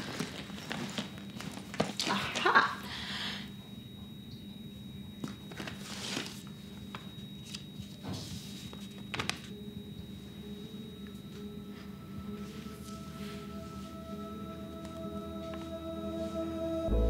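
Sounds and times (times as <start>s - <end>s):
paper crinkling and rustling: 0.0s - 2.6s, 5.2s - 9.6s
faint steady hum: 0.0s - 17.0s.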